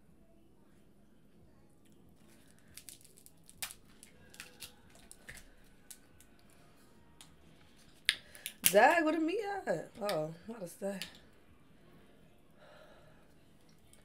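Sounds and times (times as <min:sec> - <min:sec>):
crab shells cracking: 0:02.3 - 0:06.5, 0:07.2 - 0:08.8.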